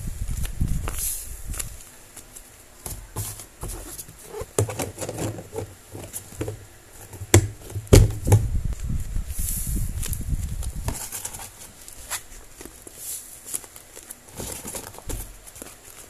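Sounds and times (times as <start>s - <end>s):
sharp knocks on plastic box: 7.2s - 8.5s
paper packages crinkling: 9.9s - 16.0s.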